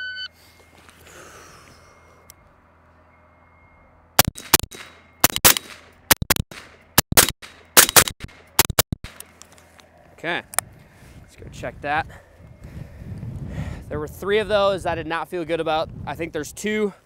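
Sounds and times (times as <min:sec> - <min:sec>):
rifle shots in pairs: 0:04.2 - 0:09.2.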